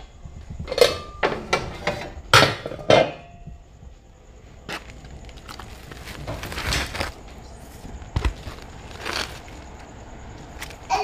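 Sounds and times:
utensils and dishes clinking: 0.6 - 3.4.

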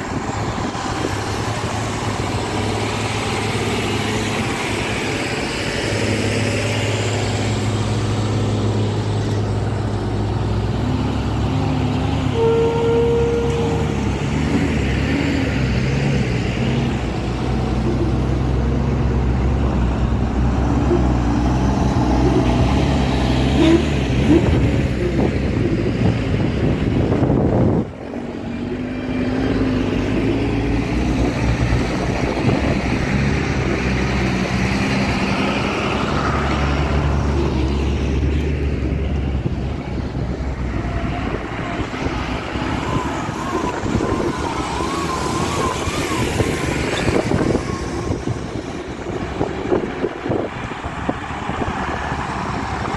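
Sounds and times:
truck diesel engines passing: 0.0 - 52.9.

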